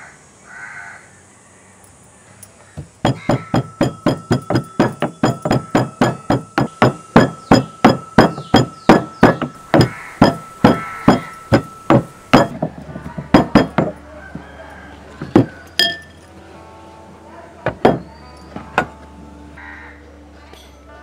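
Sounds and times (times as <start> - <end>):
stone pestle pounding in mortar: 2.8 - 14.0, 15.2 - 16.0, 17.7 - 18.1.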